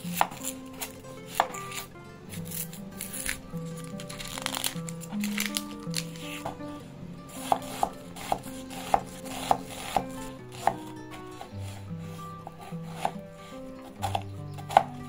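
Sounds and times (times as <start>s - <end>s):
knife chopping on wooden board: 0.0s - 3.4s, 7.3s - 13.2s, 13.8s - 15.0s.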